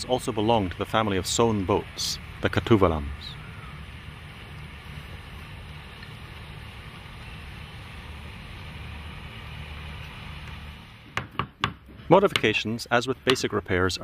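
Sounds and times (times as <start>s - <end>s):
boat engine drone: 0.0s - 11.0s
sharp knocks: 11.1s - 12.5s.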